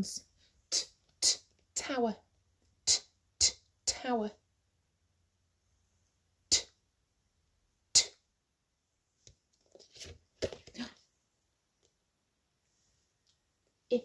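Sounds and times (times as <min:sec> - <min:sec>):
woman making phonics sound: 0:00.7 - 0:02.1, 0:02.8 - 0:04.4, 0:06.5 - 0:06.8, 0:07.9 - 0:08.2.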